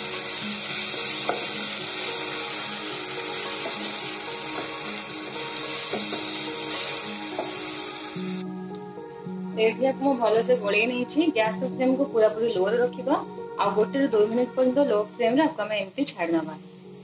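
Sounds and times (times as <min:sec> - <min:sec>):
food sizzling in oil: 0:00.0 - 0:08.6, 0:09.6 - 0:17.0
spatula scraping and tapping pan: 0:05.8 - 0:06.4.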